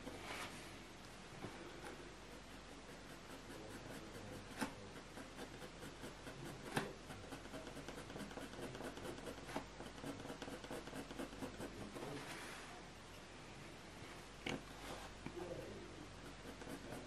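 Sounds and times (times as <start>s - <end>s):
pencil scratching on paper: 1.7s - 12.6s, 14.8s - 17.0s.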